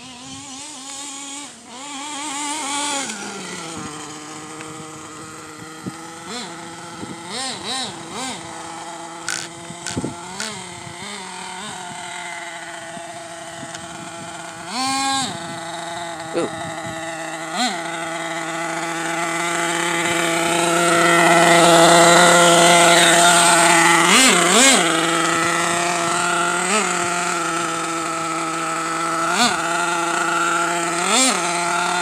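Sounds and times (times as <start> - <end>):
small nitro engine revving: 0.0 - 32.0
sharp clicks: 9.2 - 10.6.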